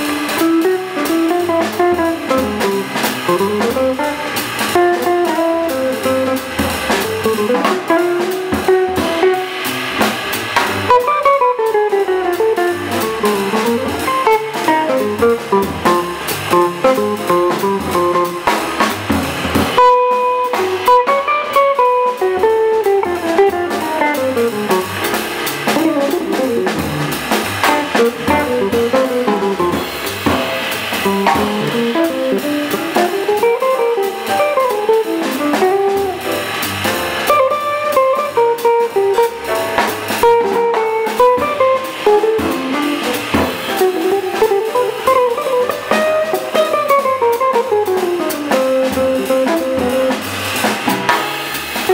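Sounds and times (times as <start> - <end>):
drum kit: 0.0 - 51.9
upright bass: 0.0 - 51.9
electric guitar solo: 37.3 - 39.4.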